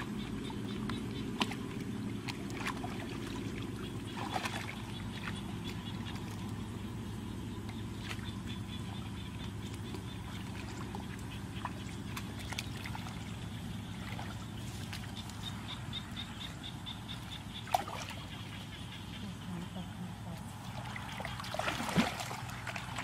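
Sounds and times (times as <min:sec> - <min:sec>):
water stirred and splashing: 0:00.0 - 0:06.8, 0:07.5 - 0:15.7, 0:17.6 - 0:18.4, 0:20.5 - 0:23.0.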